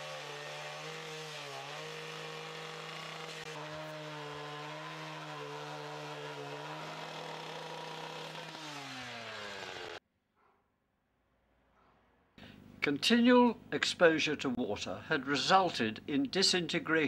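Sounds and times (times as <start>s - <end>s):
cut-off saw engine: 0.0s - 10.0s.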